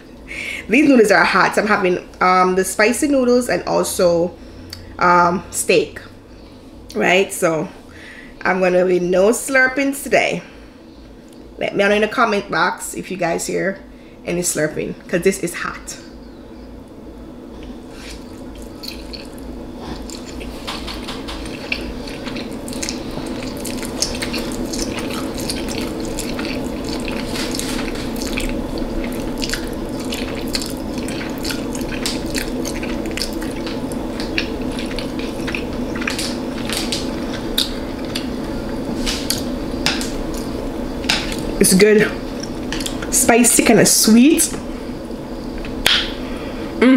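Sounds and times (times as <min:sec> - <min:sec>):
steady low hum: 0:00.0 - 0:46.9
chewing noodles: 0:17.7 - 0:41.6, 0:42.2 - 0:43.1.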